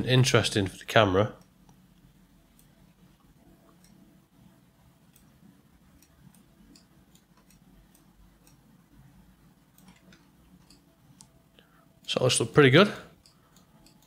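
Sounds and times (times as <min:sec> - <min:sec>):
low room hum: 0:00.0 - 0:14.0
computer mouse clicks: 0:02.5 - 0:02.8, 0:03.6 - 0:04.0, 0:05.0 - 0:08.9, 0:09.7 - 0:11.4, 0:13.1 - 0:14.0.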